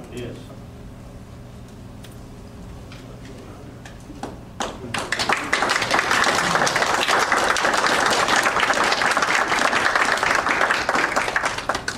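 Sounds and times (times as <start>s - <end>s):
crowd applauding: 4.6s - 11.9s.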